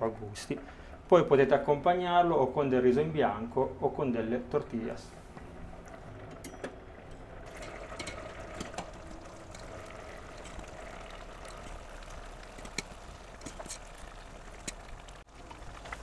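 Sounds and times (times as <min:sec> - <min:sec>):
water bubbling and sloshing in pot: 0:06.9 - 0:16.0.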